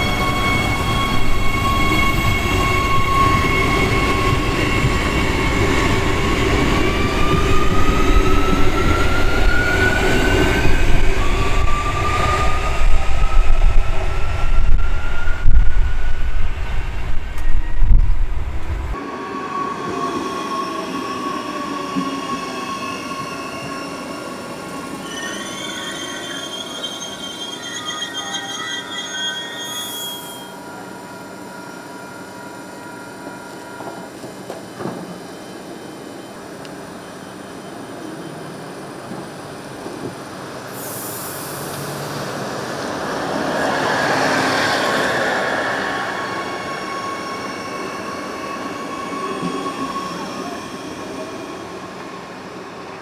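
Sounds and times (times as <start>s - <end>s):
low train rumble: 0.0s - 19.2s
electric train passing: 40.4s - 53.0s.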